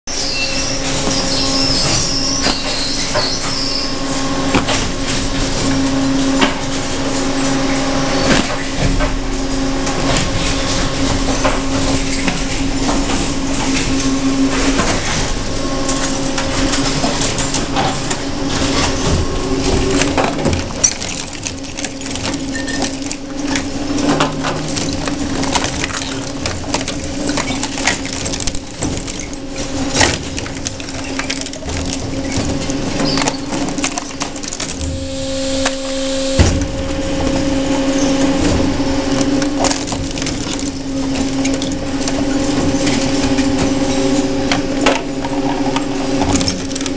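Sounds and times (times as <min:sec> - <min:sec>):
high squeal: 0:00.1 - 0:04.4, 0:34.8 - 0:39.0
metal cracking and crunching: 0:00.1 - 0:46.9
shredder motor hum: 0:00.2 - 0:46.9.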